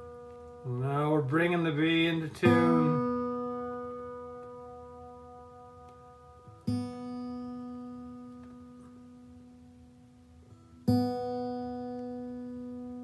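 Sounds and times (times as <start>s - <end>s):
guitar string plucked and ringing: 0.0s - 9.4s.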